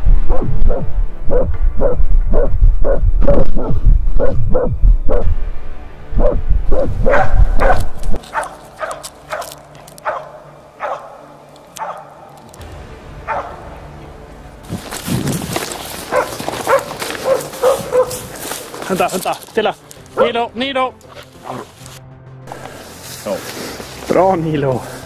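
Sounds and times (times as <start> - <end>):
heavy low rumble: 0.0 - 9.8, 12.5 - 20.2
dog barking rapidly: 0.3 - 5.3, 6.2 - 9.4, 10.0 - 11.2, 11.8 - 12.1, 16.1 - 18.4.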